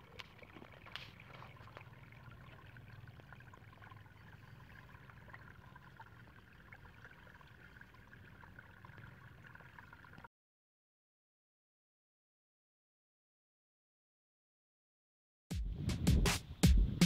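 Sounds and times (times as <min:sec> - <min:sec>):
faint trickle of water: 0:00.0 - 0:10.3.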